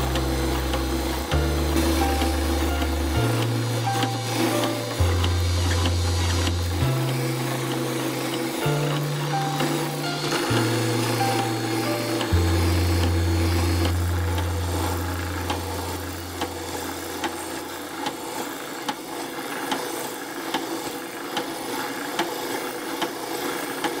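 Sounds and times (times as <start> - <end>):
wood rubbing on sanding drum: 0.0 - 20.0.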